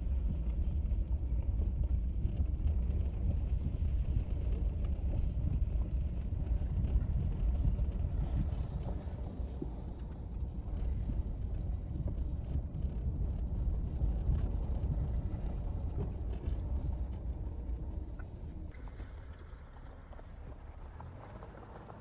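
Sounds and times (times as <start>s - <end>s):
vehicle engine rumble: 0.0s - 22.0s
tyres crunching over gravel: 18.7s - 22.0s.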